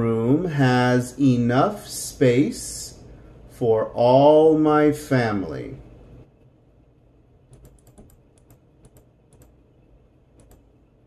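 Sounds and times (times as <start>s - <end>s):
computer mouse clicking: 7.5s - 9.6s, 10.3s - 10.7s.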